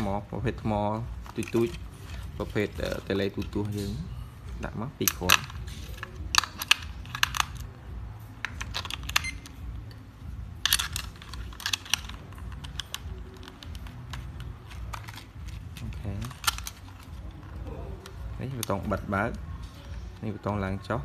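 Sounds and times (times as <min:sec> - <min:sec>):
plastic clicks and clatters: 0:05.0 - 0:07.7, 0:08.4 - 0:09.6, 0:10.6 - 0:20.1.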